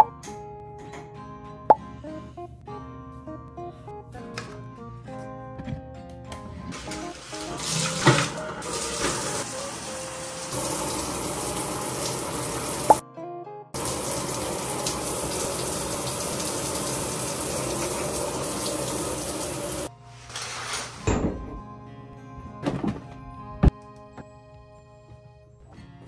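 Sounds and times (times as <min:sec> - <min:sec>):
shower water spraying: 0:06.8 - 0:13.0, 0:13.8 - 0:21.0.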